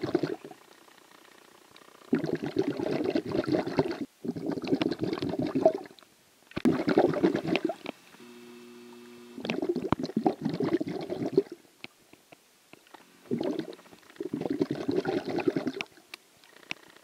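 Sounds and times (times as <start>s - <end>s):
water gurgling and bubbling: 0.0s - 0.6s, 2.1s - 6.0s, 6.6s - 7.9s, 9.4s - 11.6s, 13.2s - 16.0s
faint steady hum: 0.0s - 17.0s.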